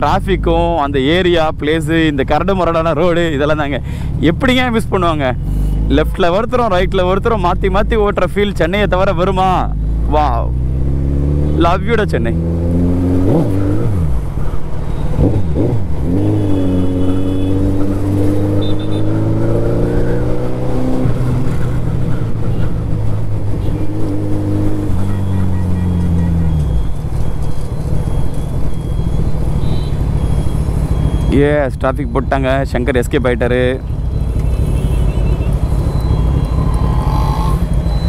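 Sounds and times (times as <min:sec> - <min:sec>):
wind and road noise: 0:00.0 - 0:38.0
short high beeps: 0:18.5 - 0:19.1, 0:25.0 - 0:31.6, 0:33.8 - 0:38.0.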